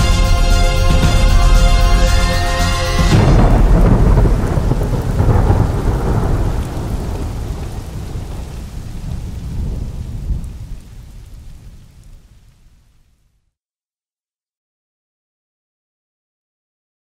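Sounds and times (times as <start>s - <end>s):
music: 0.0s - 4.8s.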